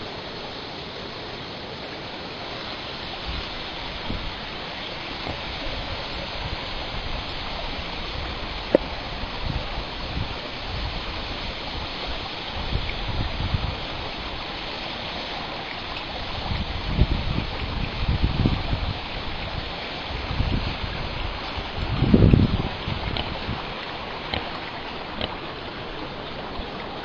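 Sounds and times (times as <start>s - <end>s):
steady rushing hiss: 0.0s - 27.0s.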